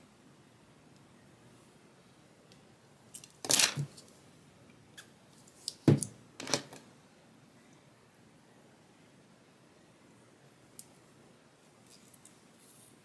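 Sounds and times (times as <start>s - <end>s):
scratchy rustles of wig hair: 11.6s - 13.0s.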